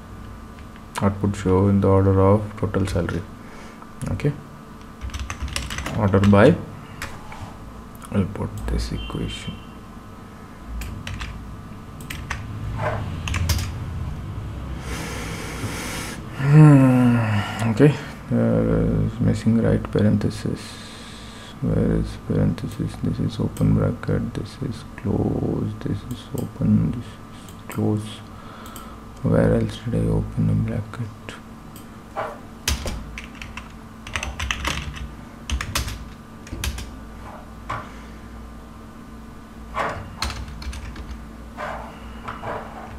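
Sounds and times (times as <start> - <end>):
low steady hum: 0.0 - 42.9
computer keyboard typing: 4.8 - 6.4, 10.8 - 11.4, 12.0 - 12.5, 13.2 - 13.8, 32.7 - 36.9, 40.1 - 41.2.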